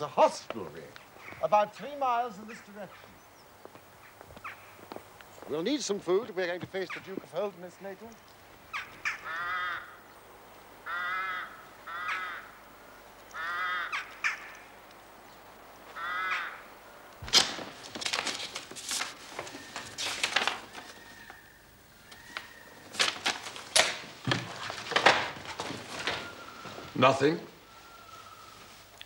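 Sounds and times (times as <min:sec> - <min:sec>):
crow cawing: 0:04.0 - 0:04.9, 0:08.7 - 0:10.1, 0:10.8 - 0:12.6, 0:13.3 - 0:14.7, 0:15.9 - 0:17.0, 0:20.5 - 0:23.0, 0:27.7 - 0:28.6
paper rustling: 0:17.2 - 0:21.4, 0:22.1 - 0:27.0
sharp clicks of envelope: 0:17.2 - 0:21.4, 0:22.1 - 0:26.3.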